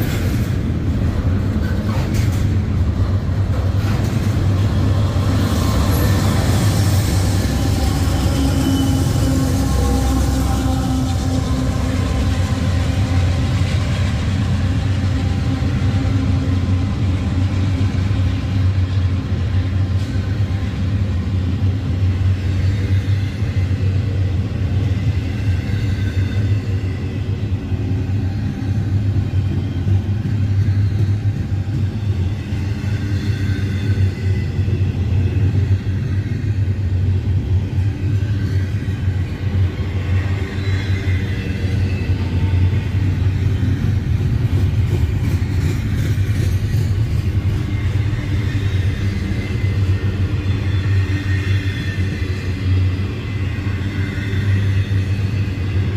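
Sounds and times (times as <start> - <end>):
freight train wheels rumbling: 0.0 - 55.9
faint high wheel squeals: 5.5 - 12.2, 38.0 - 44.0, 46.0 - 55.9.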